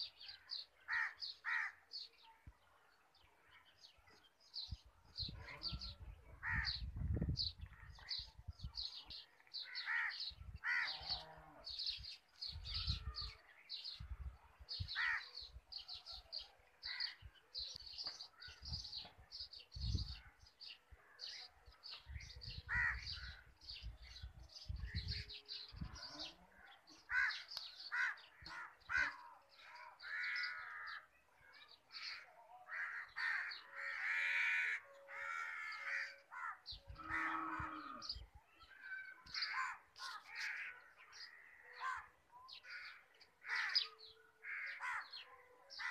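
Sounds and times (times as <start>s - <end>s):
crows cawing: 0.9s - 1.8s, 9.6s - 10.9s, 15.0s - 15.3s, 22.7s - 23.4s, 27.1s - 29.2s, 30.0s - 31.0s, 32.0s - 38.0s, 38.9s - 45.2s.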